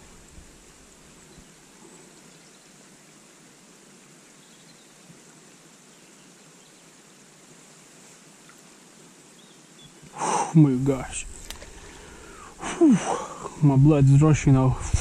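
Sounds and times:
outdoor ambience hiss: 0.0s - 15.0s.

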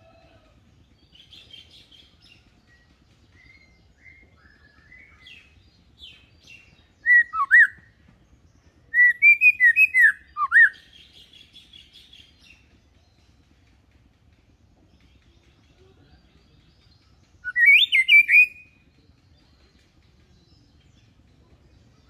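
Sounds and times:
bird twittering: 3.4s - 7.9s, 8.9s - 12.6s, 17.3s - 18.8s
bird whistling song phrases: 3.4s - 7.9s, 8.9s - 12.3s, 17.4s - 18.8s.

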